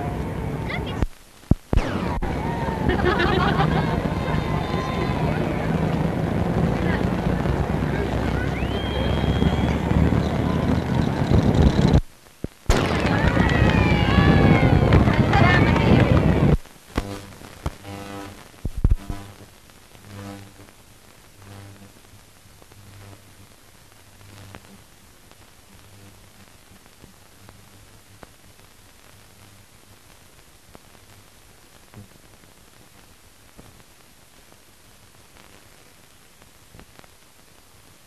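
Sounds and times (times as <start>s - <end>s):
film soundtrack hiss: 0.0s - 38.0s
sharp loud pop: 12.7s - 13.6s.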